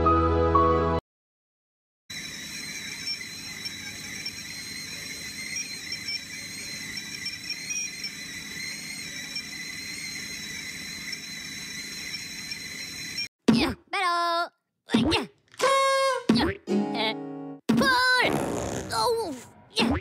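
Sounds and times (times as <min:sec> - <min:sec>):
kettle whistling: 0:02.1 - 0:13.3.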